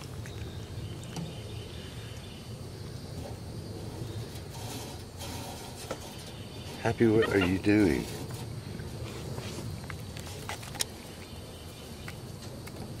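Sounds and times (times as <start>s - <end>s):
rustling hisses: 1.6s - 11.2s.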